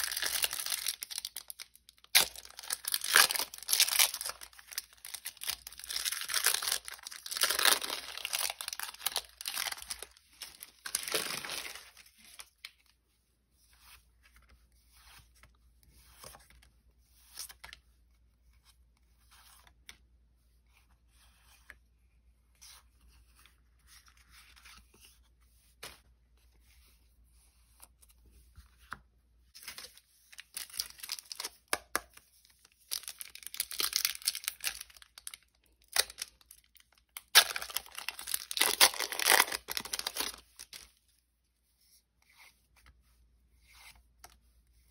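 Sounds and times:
foil wrappers tearing and crinkling: 0:00.0 - 0:12.4, 0:32.9 - 0:40.8.

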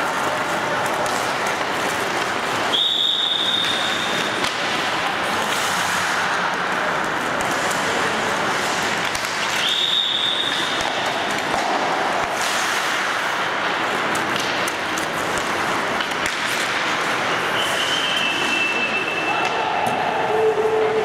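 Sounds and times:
hockey sticks and pucks clacking: 0:00.0 - 0:21.0
skates hissing on ice: 0:11.8 - 0:13.6.

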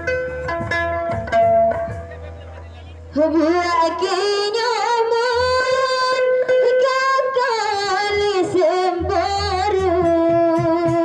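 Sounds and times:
soft low drum beats: 0:00.0 - 0:04.2, 0:08.0 - 0:11.0
woman singing into a microphone: 0:03.1 - 0:11.0.

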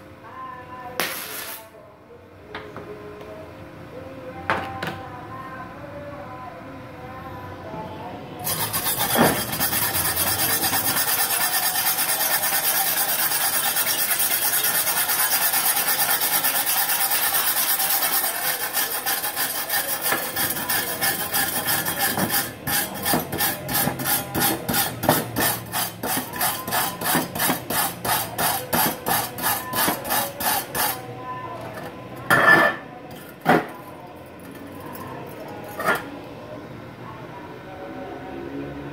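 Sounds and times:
wire brush scrubbing metal: 0:08.4 - 0:31.1.

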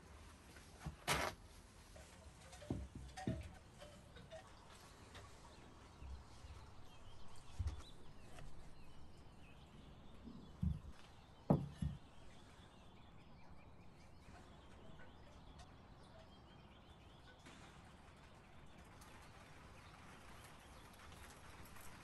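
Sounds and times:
faint background noise: 0:00.0 - 0:22.0
objects knocking on wooden workbench: 0:02.6 - 0:03.6, 0:10.6 - 0:12.1.

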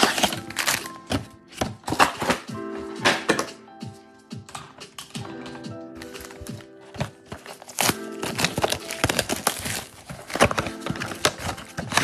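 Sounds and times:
cardboard box clicks and rustles: 0:00.0 - 0:02.4, 0:06.0 - 0:12.0
background music: 0:00.0 - 0:12.0.

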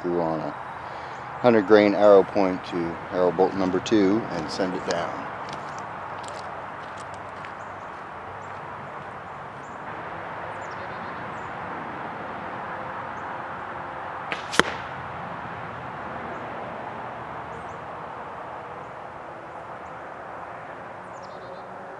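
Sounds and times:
outdoor background hiss: 0:00.0 - 0:11.3, 0:11.9 - 0:20.6
arrow striking target: 0:14.3 - 0:15.1
distant shot crack: 0:14.3 - 0:15.2.

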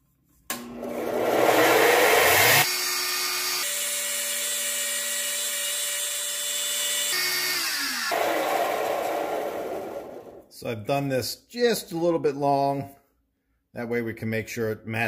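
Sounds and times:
disc sander motor: 0:00.5 - 0:10.2.

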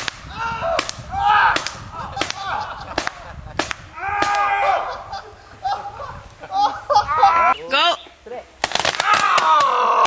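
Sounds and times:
people crying out: 0:03.9 - 0:07.6, 0:09.0 - 0:10.0.

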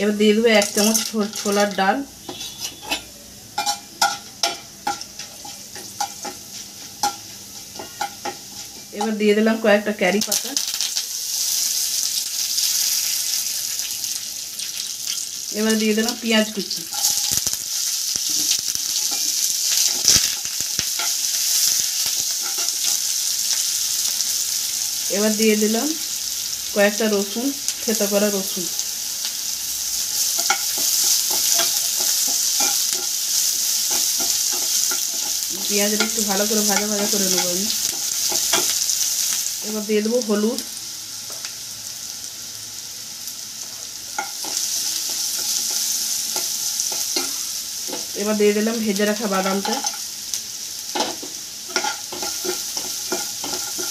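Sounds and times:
onions sizzling in hot oil: 0:00.0 - 0:53.9
spatula scraping and stirring pan: 0:00.6 - 0:09.1, 0:16.8 - 0:24.6, 0:29.9 - 0:39.5, 0:44.1 - 0:48.2, 0:50.8 - 0:53.9
steel spatula scraping pan: 0:00.7 - 0:06.4.

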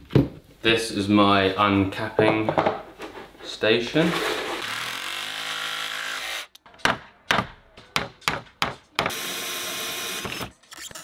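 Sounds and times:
cordless drill with hole saw: 0:09.1 - 0:10.5.

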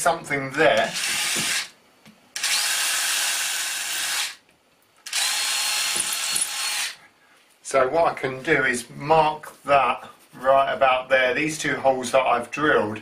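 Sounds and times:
cordless drill drilling into wall: 0:00.9 - 0:01.7, 0:02.4 - 0:04.4, 0:05.0 - 0:07.0.

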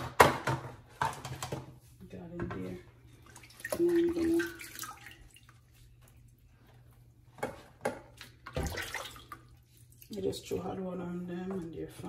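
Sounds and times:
water splashing in a sink: 0:02.5 - 0:06.5, 0:07.3 - 0:10.6.

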